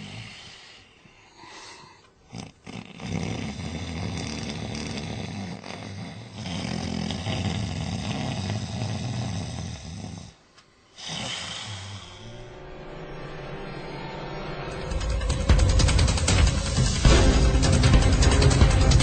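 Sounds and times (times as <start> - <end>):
person snoring: 0.0 - 12.5.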